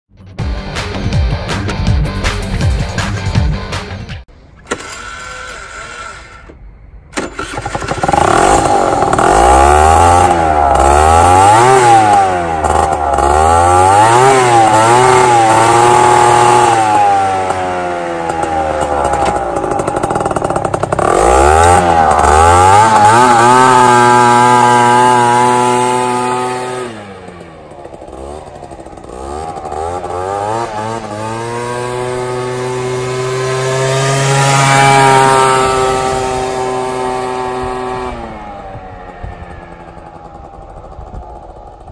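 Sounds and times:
two-stroke scooter engine revving: 4.7s - 6.6s, 7.2s - 41.9s.

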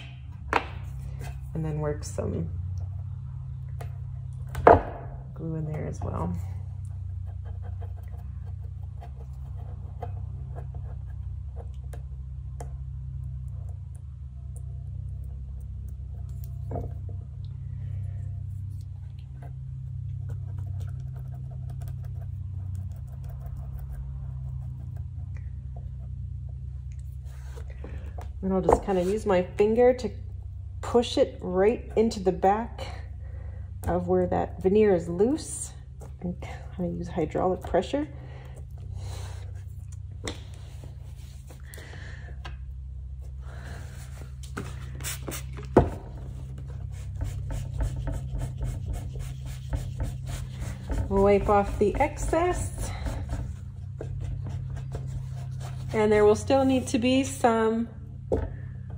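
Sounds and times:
steady low hum: 0.0s - 58.9s
cloth wiping over panel: 43.9s - 56.4s
stick scratching under veneer: 44.4s - 56.7s.

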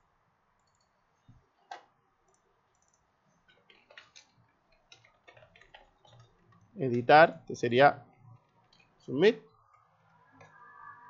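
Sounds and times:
keyboard and mouse clicks: 0.6s - 0.9s, 1.7s - 6.7s.

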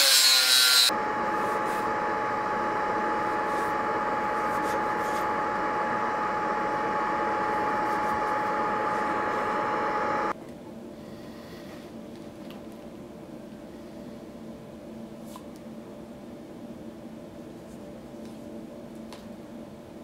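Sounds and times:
machine motor whining: 0.6s - 10.3s.

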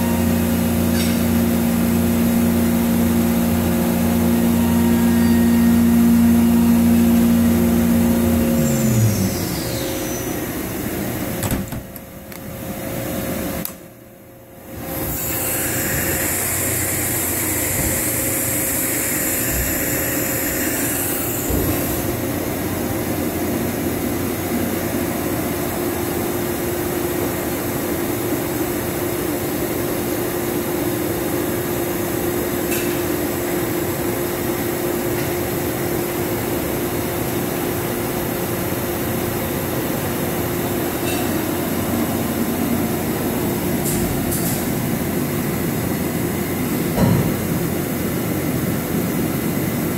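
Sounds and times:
machine hum and whir: 0.0s - 49.9s.

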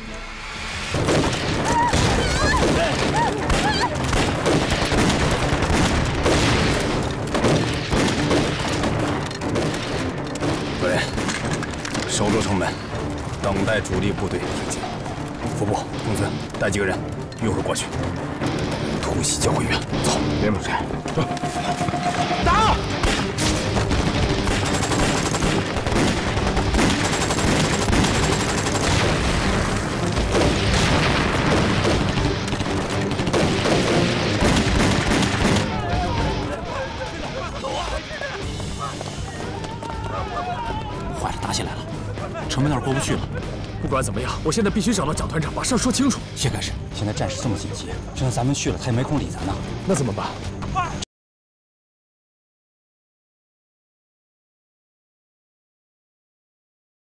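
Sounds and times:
rapid rifle gunfire: 2.6s - 12.0s, 23.0s - 35.8s.

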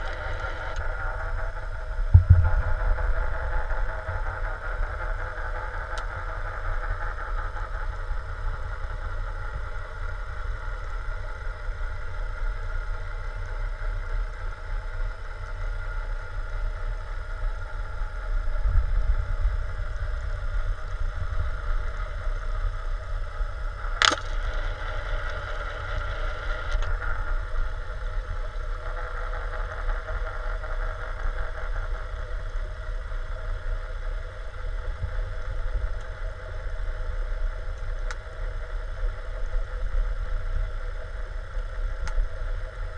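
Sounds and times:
distant boat motor drone underwater: 0.0s - 42.9s
low underwater rumble: 1.8s - 5.5s
sharp click: 24.0s - 24.4s.

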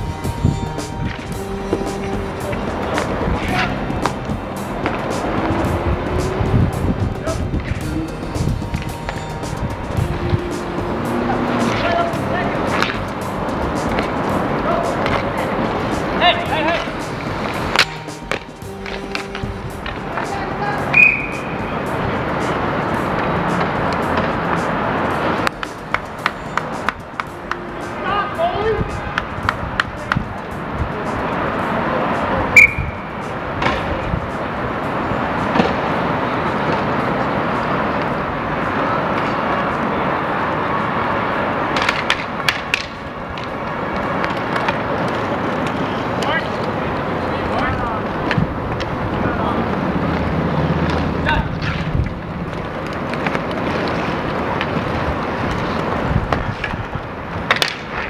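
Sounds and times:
city traffic hum: 0.0s - 58.0s
skate wheels rolling: 0.0s - 58.0s
steady rush of noise: 0.0s - 58.0s
sticks and puck clacking: 0.7s - 6.3s, 7.3s - 39.9s, 41.6s - 58.0s
knocks of sticks and puck: 41.7s - 46.8s, 51.6s - 58.0s.

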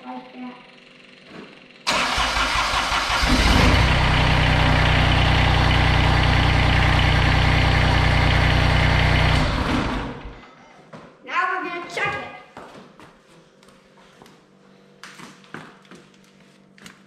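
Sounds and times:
diesel engine running: 0.2s - 10.4s
diesel engine cranking and starting: 0.8s - 10.4s.

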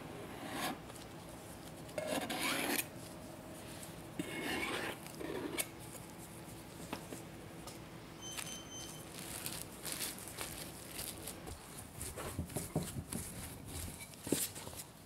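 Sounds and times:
knife scraping metal ring: 0.3s - 0.8s, 2.0s - 2.9s, 4.2s - 5.7s.

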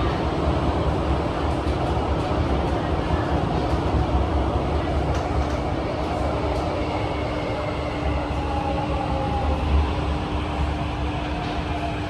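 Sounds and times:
constant hum: 0.0s - 12.0s.

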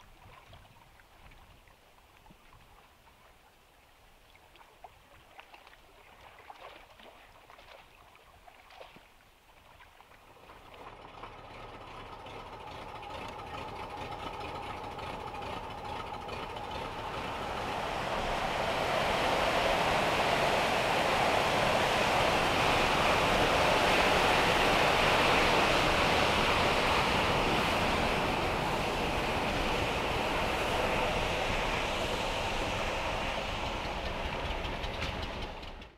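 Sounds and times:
water gushing from pipe: 10.2s - 35.6s.

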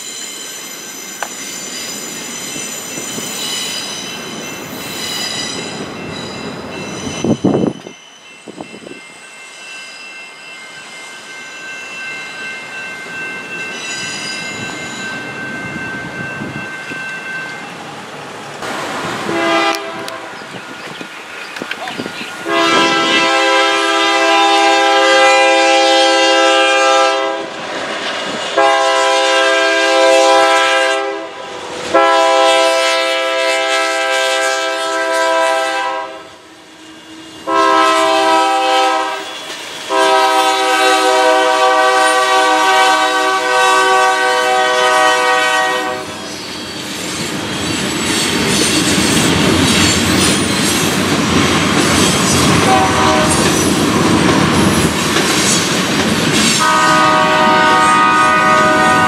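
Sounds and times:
locomotive air horn blasts: 19.2s - 20.4s, 22.4s - 27.6s, 28.6s - 36.4s, 37.4s - 39.3s, 39.9s - 46.2s, 52.6s - 53.4s, 56.6s - 59.0s.

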